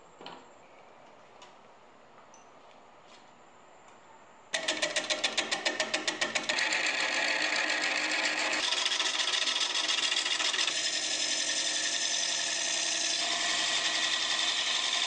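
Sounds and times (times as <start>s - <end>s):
turning tool shaving wood: 4.6s - 15.0s
wood lathe running: 4.6s - 15.0s.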